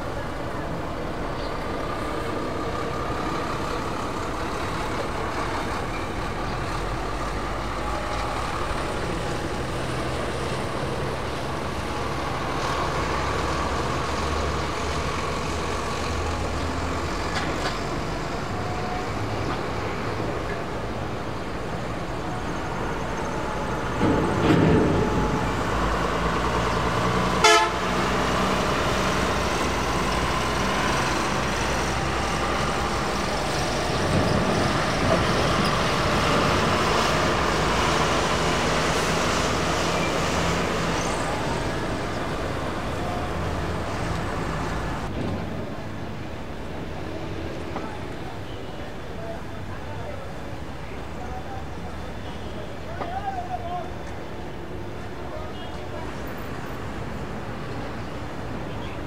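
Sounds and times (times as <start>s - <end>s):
road traffic: 0.0s - 59.0s
vehicle horns tooting: 27.4s - 28.0s.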